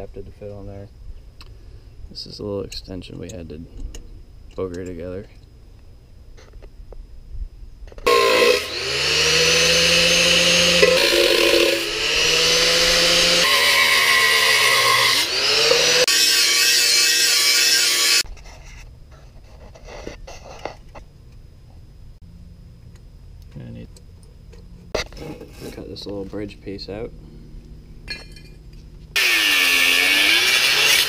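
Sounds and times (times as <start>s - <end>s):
angle grinder grinding metal: 8.0s - 18.3s, 29.1s - 31.0s.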